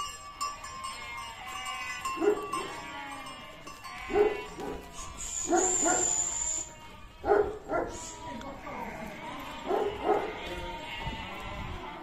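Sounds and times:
dog barking: 2.2 - 2.7, 4.1 - 4.9, 5.5 - 6.2, 7.2 - 8.0, 9.6 - 10.4
high whistle-like tone: 5.0 - 6.7.

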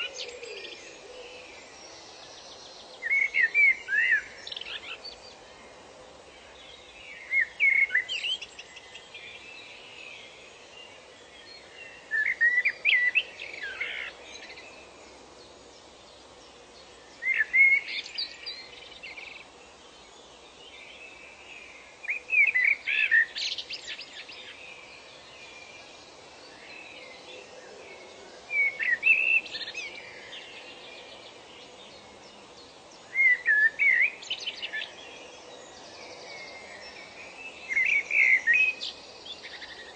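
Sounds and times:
faint steady hiss: 0.0 - 39.9
songbird chirping and whistling: 7.2 - 8.9, 12.1 - 14.6, 17.2 - 19.4, 33.1 - 34.9, 37.6 - 39.8.

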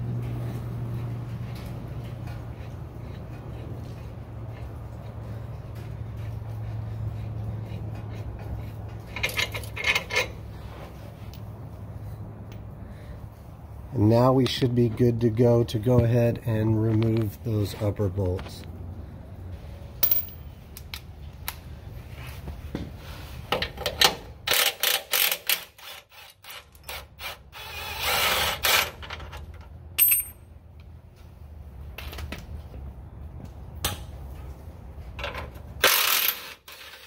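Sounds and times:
metal clinks and knocks: 8.0 - 10.4, 20.0 - 20.6, 29.0 - 30.6.

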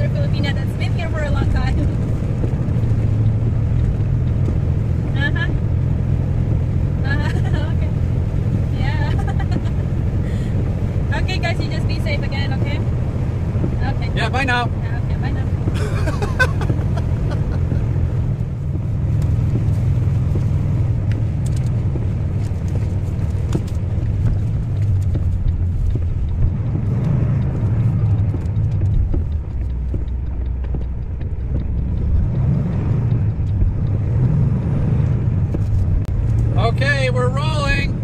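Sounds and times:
road noise: 0.0 - 38.0
vehicle engine rumble: 0.0 - 38.0.

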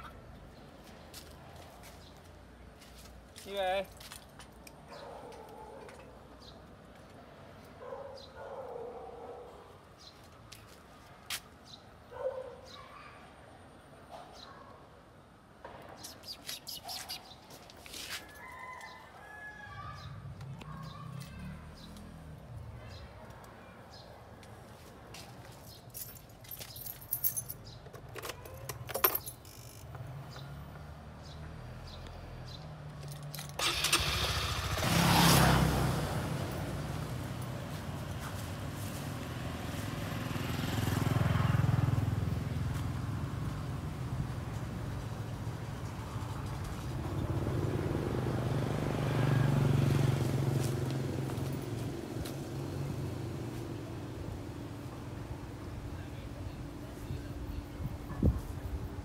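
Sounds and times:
passing vehicle engine hum: 20.0 - 22.9, 29.5 - 59.0
keys jangling: 25.6 - 29.9, 33.0 - 33.6.

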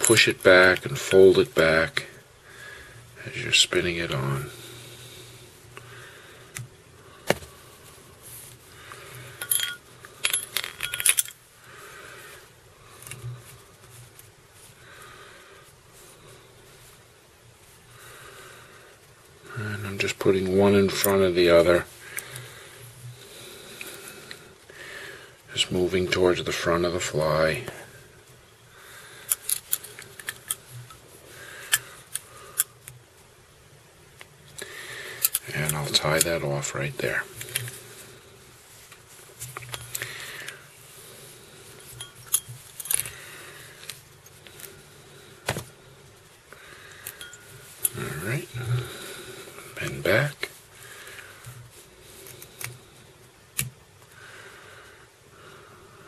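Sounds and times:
faint rustling: 0.0 - 56.0
small metal tools clinking: 9.4 - 11.4.

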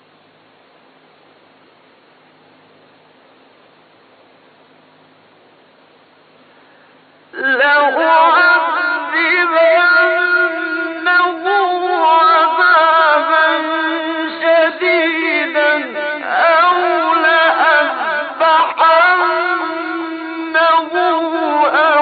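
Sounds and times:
man chanting melodically: 7.4 - 22.0.

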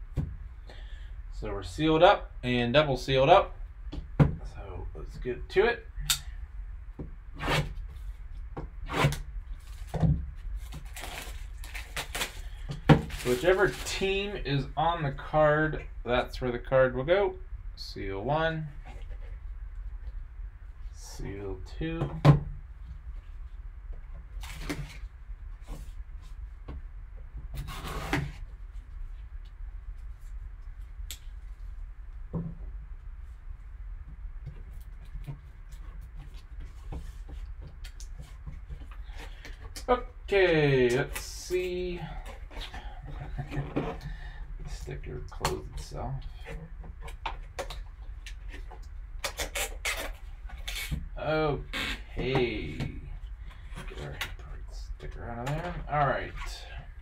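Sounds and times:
plastic shrink wrap crackling: 10.6 - 14.3.

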